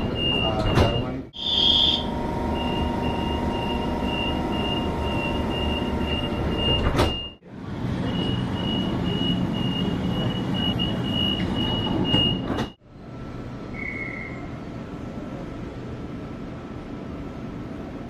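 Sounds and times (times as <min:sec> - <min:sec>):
door warning beeps: 0:00.0 - 0:07.4, 0:08.0 - 0:12.8
train carriage hum: 0:00.0 - 0:18.0
doors shutting with a thud: 0:00.3 - 0:01.2, 0:06.5 - 0:07.4.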